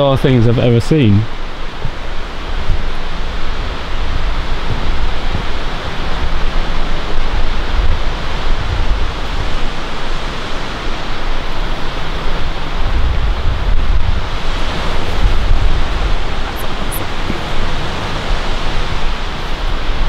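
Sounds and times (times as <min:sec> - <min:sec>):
loud rushing noise: 0:09.4 - 0:20.0.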